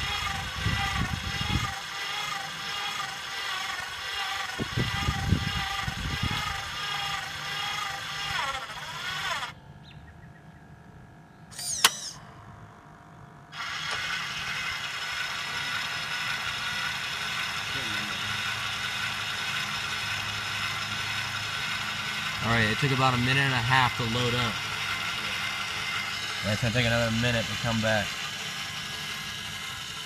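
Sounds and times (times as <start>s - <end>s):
small motor whining: 0.0s - 10.0s, 11.5s - 12.5s, 13.4s - 30.0s
sharp click: 11.5s - 12.3s.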